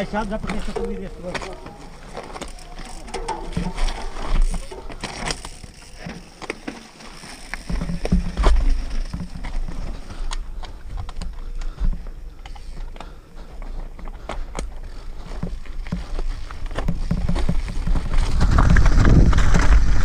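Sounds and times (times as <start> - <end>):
wheels thumping over rock: 0.0 - 10.1, 15.4 - 20.0
bike chain and frame clacking: 0.0 - 20.0.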